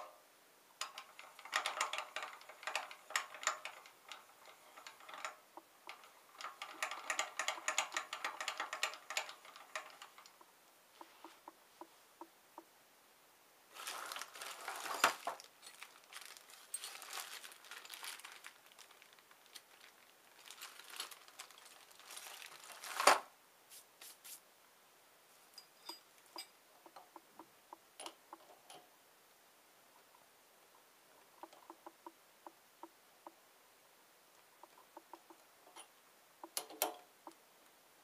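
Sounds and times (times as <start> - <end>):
crinkling and rustling: 0.8 - 12.0, 13.7 - 24.4.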